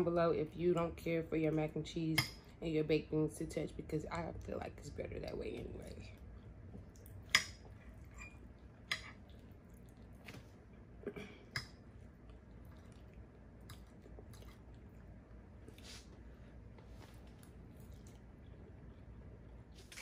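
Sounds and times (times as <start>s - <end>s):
quiet chewing: 5.9s - 20.0s.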